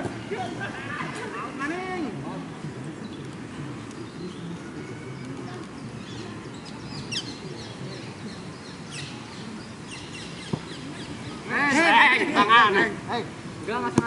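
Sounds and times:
distant people talking: 0.0s - 14.0s
birds chirping: 2.4s - 12.7s.

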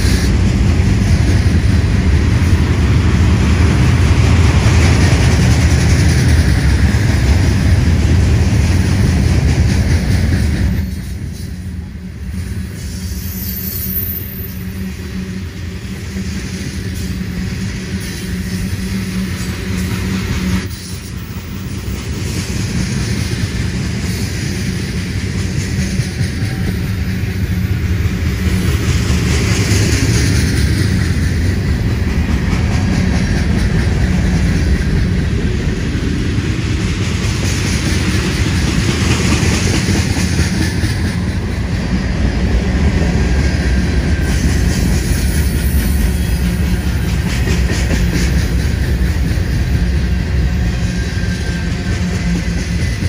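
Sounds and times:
freight train rumbling past: 0.0s - 53.0s
train wheel clicks: 36.7s - 42.4s, 43.3s - 50.0s.

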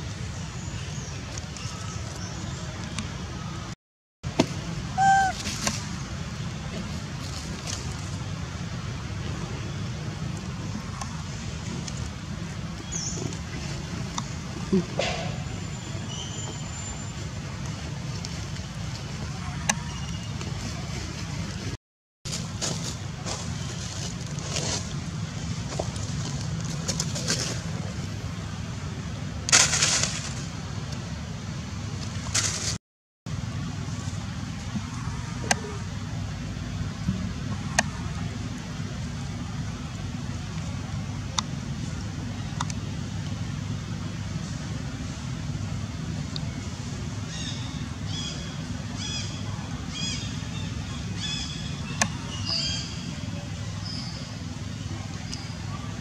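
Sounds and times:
low outdoor rumble: 0.0s - 56.0s
high-pitched animal calls: 5.0s - 5.4s.

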